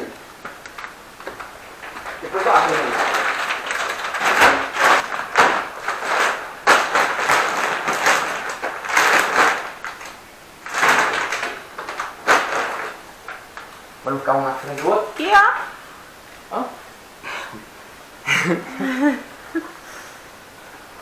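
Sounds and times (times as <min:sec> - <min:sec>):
plastic sacks rustling and crinkling: 0:00.0 - 0:15.5.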